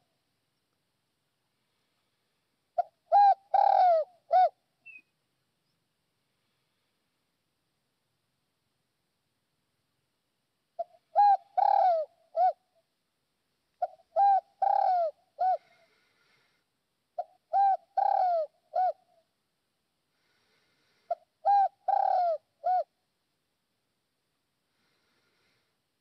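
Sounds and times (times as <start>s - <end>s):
dove cooing: 2.8s - 5.0s, 10.8s - 12.8s, 13.8s - 16.1s, 17.2s - 19.3s, 21.1s - 23.0s.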